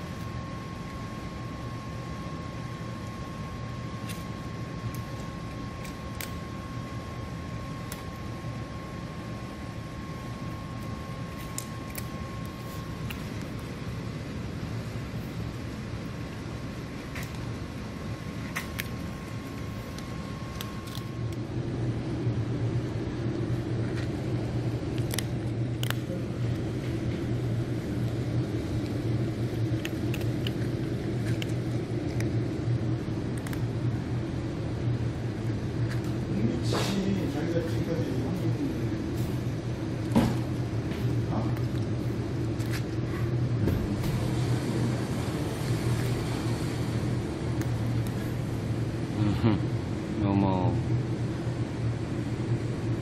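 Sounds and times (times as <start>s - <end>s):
low rumbling hum: 0.0s - 53.0s
cats crunching dry food: 2.9s - 6.7s, 10.0s - 13.9s, 15.1s - 21.5s, 24.8s - 33.8s.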